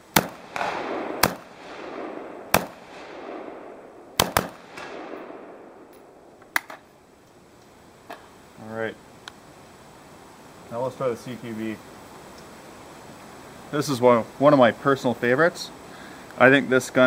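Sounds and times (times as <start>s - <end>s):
rifle shots with echo: 0.0s - 6.7s.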